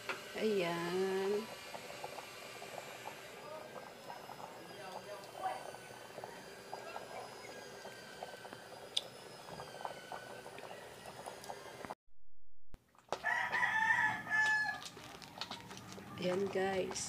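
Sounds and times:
porridge bubbling in a pot: 0:00.0 - 0:12.0, 0:12.8 - 0:17.0
rooster crowing: 0:13.1 - 0:15.0.

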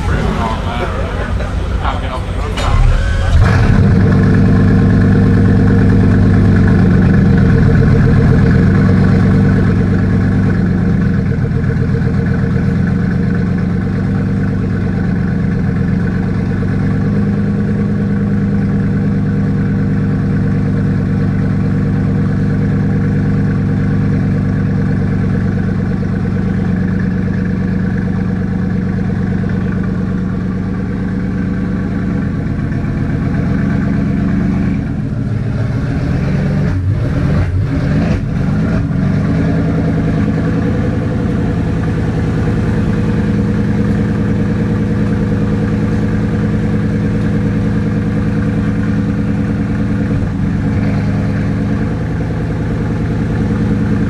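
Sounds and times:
car engine idling: 0:00.0 - 0:54.0.

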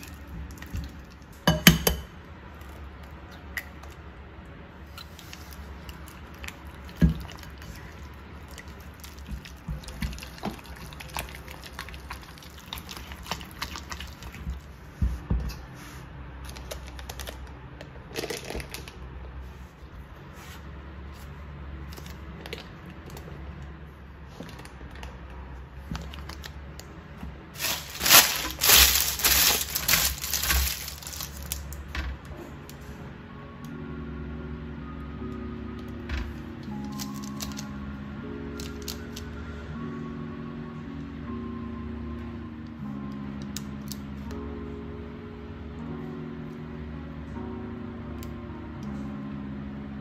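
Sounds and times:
baking paper rustling: 0:27.6 - 0:31.7.

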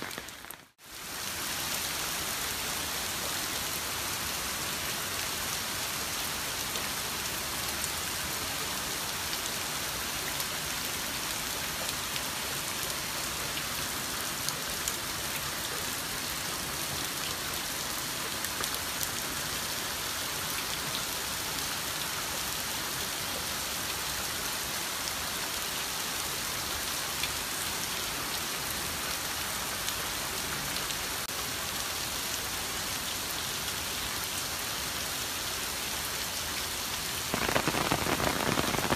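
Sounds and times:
raindrops ticking on surfaces: 0:00.0 - 0:02.0, 0:03.0 - 0:22.6, 0:35.5 - 0:38.9
heavy rain hissing: 0:37.0 - 0:38.9.

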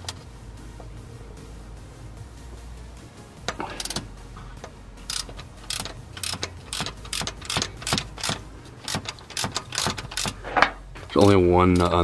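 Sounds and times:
ratchet wrench clicking: 0:03.5 - 0:04.1, 0:05.1 - 0:12.0.

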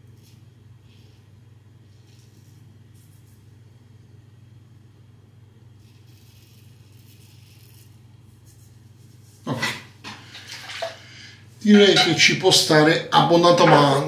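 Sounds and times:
steady low hum: 0:00.0 - 0:14.0
razor rasping on stubble: 0:05.8 - 0:08.0.

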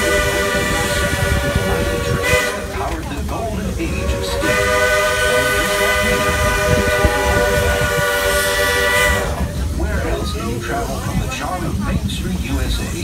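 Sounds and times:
steam locomotive whistle: 0:00.0 - 0:02.8, 0:03.8 - 0:09.6
train rumbling: 0:00.0 - 0:13.0.

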